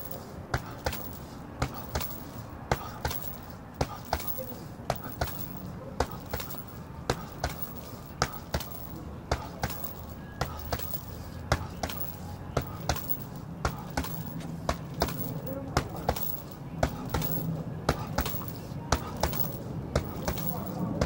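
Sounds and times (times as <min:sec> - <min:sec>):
boxing gloves thudding heavy bag: 0:00.0 - 0:21.0.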